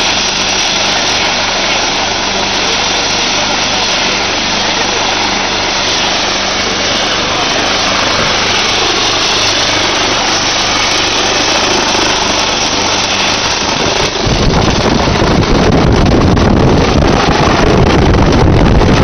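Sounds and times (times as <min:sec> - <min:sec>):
helicopter turbine whine: 0:00.0 - 0:19.0
wind buffeting microphone: 0:00.0 - 0:19.0.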